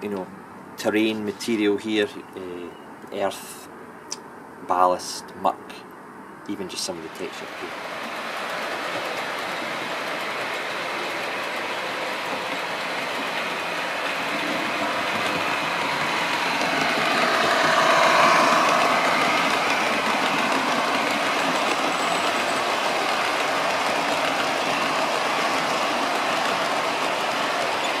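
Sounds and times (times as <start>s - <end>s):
model train rolling on track: 7.1s - 28.0s.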